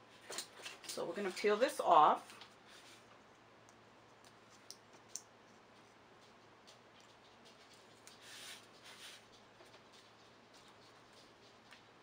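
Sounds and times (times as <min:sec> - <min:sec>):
soft scratchy paper rustle: 0:00.9 - 0:03.4, 0:04.1 - 0:12.0.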